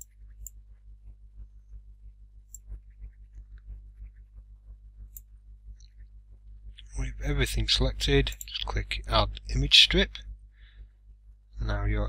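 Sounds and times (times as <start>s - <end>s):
computer mouse clicks: 0.0s - 0.6s
steady low hum: 0.0s - 12.0s.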